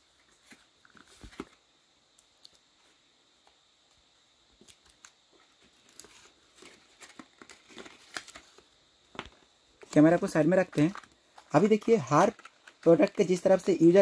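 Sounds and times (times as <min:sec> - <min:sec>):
packaging rustling and clicking: 0:04.6 - 0:13.8.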